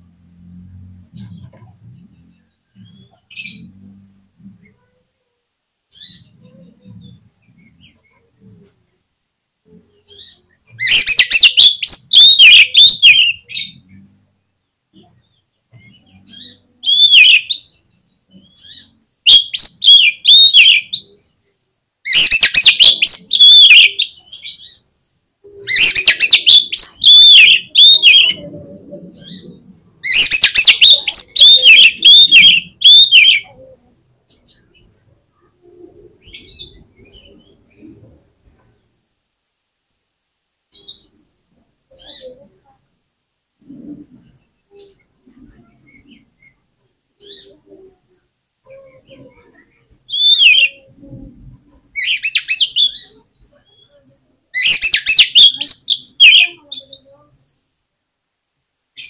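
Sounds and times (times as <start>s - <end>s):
bird singing whistled notes: 10.2s - 13.6s, 16.1s - 17.8s, 18.5s - 21.2s, 22.1s - 24.8s, 25.6s - 28.4s, 30.1s - 33.5s, 50.1s - 50.8s.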